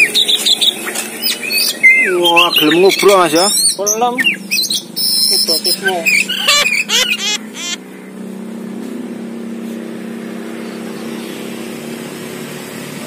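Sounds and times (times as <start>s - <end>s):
bird chattering calls: 0.0s - 8.2s
low motor hum: 4.2s - 13.0s.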